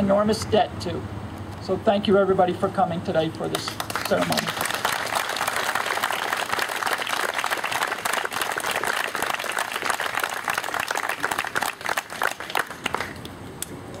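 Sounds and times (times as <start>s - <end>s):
crowd applauding: 3.6s - 13.3s.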